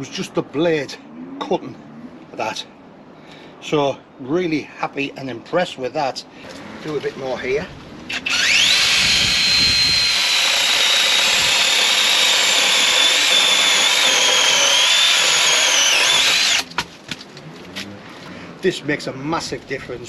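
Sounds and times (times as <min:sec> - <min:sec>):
mini chainsaw whining: 0:08.1 - 0:16.9.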